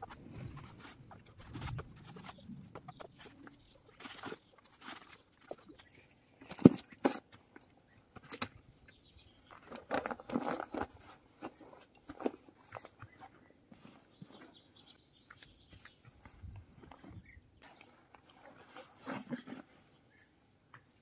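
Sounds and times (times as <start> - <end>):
rustling: 0.0 - 7.4.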